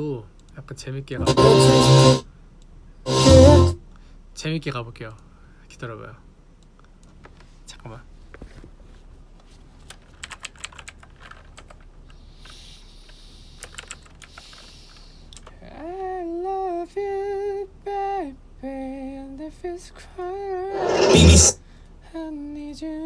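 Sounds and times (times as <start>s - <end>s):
person humming notes: 1.2s - 2.2s, 3.1s - 3.8s
keyboard and mouse clicking: 13.6s - 15.5s.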